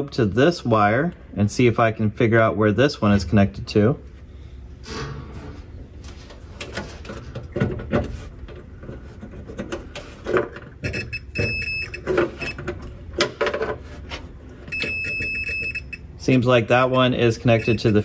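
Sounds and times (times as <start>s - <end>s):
probe and wires clicking and scraping: 6.0s - 16.0s
multimeter continuity beeping: 10.8s - 12.6s, 14.7s - 18.0s.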